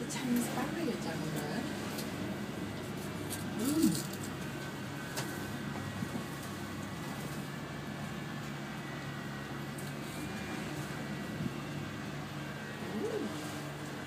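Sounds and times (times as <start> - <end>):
cable car cabin hum: 0.0 - 14.0
person humming: 3.6 - 4.0.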